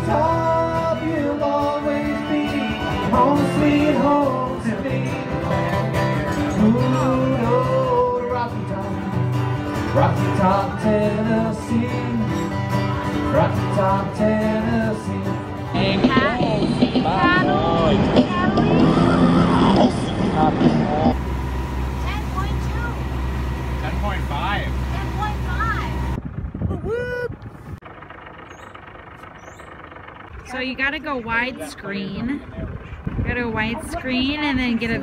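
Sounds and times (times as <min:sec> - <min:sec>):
man singing: 0:00.0 - 0:09.2, 0:09.8 - 0:12.6, 0:13.3 - 0:21.1
acoustic guitars strummed: 0:00.0 - 0:26.2.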